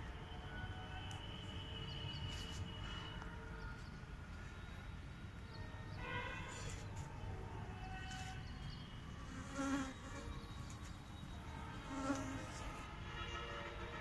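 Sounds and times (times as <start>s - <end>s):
flying insect buzzing: 9.2s - 10.3s, 11.8s - 12.8s.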